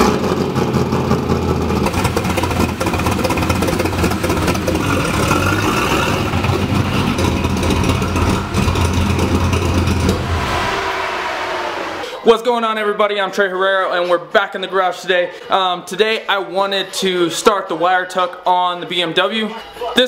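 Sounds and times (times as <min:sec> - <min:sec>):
engine idling: 0:00.3 - 0:11.3.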